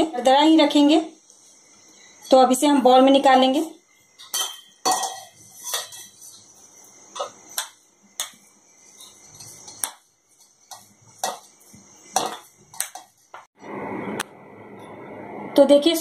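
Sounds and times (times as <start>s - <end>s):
metal spoon clinking on steel jar: 4.2s - 6.3s.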